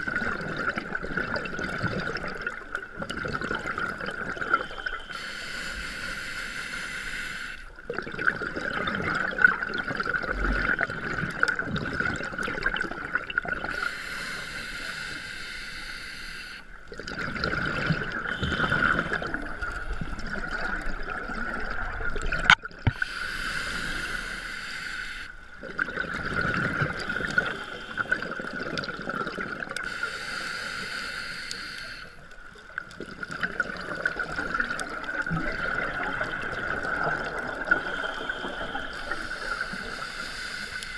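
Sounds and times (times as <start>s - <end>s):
regulator hissing inhale: 4.6s - 7.7s, 13.7s - 16.8s, 18.3s - 19.9s, 22.9s - 25.5s, 26.9s - 28.4s, 29.8s - 32.3s, 37.6s - 40.9s
bubbling exhale: 17.0s - 32.2s.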